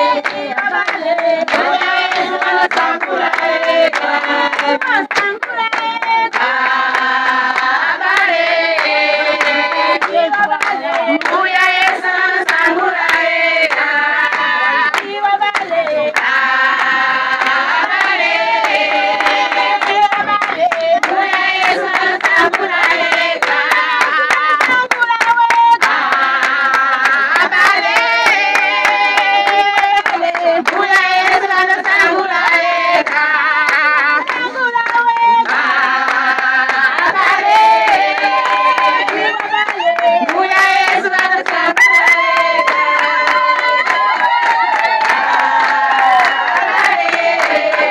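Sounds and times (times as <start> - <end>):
group of people singing: 0.0 - 47.9
hand-clapping: 0.0 - 47.9.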